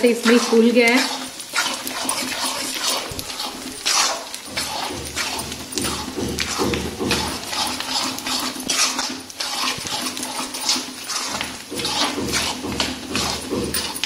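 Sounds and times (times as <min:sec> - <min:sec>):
metal spatula scraping a pan: 0:00.0 - 0:14.0.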